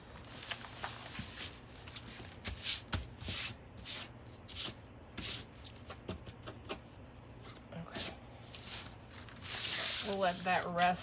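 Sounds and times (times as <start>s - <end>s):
hands rubbing over canvas: 8.6s - 11.0s.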